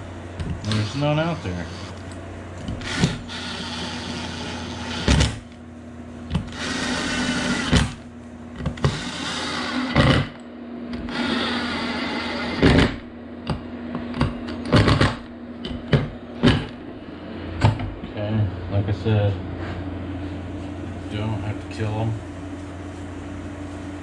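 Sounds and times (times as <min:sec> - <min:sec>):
drill motor whirring: 0:00.5 - 0:05.6, 0:06.3 - 0:08.0, 0:08.6 - 0:13.0.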